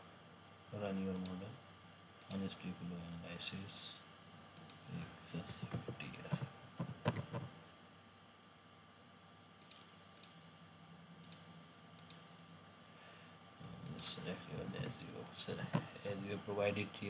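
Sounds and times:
faint steady hum: 0.0 - 17.0
keyboard typing: 5.7 - 7.5
mouse clicks: 9.6 - 10.4, 11.2 - 12.3.

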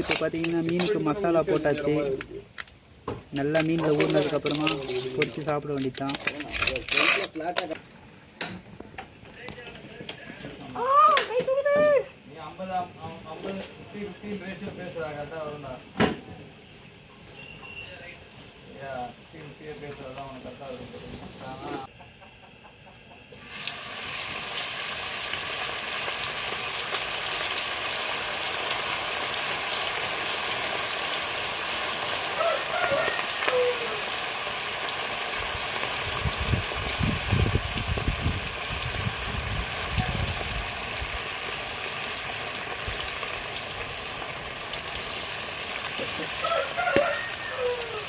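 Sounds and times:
fish sizzling in hot oil: 0.0 - 1.9, 2.5 - 7.8, 23.4 - 48.0.

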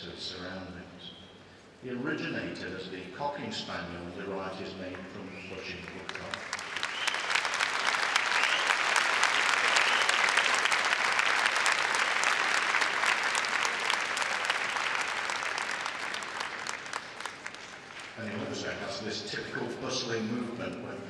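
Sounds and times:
audience applauding: 5.0 - 18.8.

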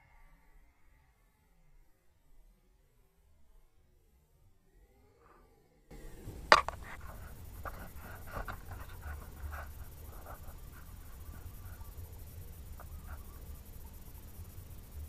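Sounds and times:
low hum: 0.4 - 15.0
rifle handling rustling and clicks: 6.0 - 10.6.

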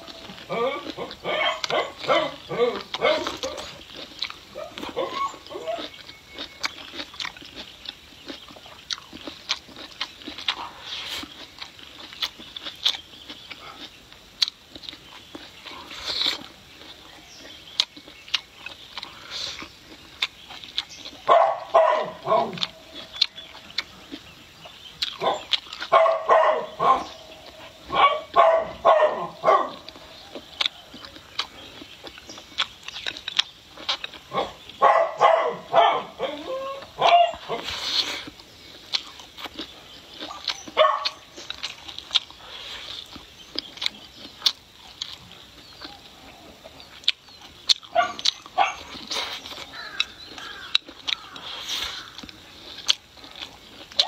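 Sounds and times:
close-up chewing: 0.0 - 54.0
dog barking: 0.6 - 3.7, 4.6 - 5.9, 21.2 - 22.8, 25.2 - 27.1, 27.9 - 29.9, 34.3 - 37.7, 40.2 - 41.2, 47.9 - 49.0.

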